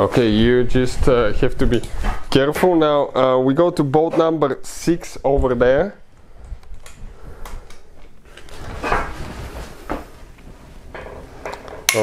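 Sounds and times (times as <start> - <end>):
metal clunks and scrapes: 8.5 - 10.1, 10.8 - 12.0.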